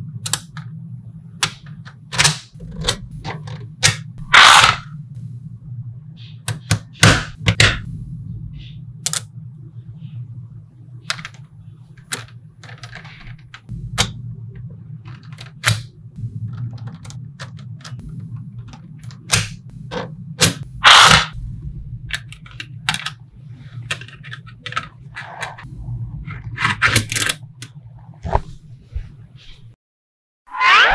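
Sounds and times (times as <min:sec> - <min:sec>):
steady low hum: 0:00.0 - 0:29.8.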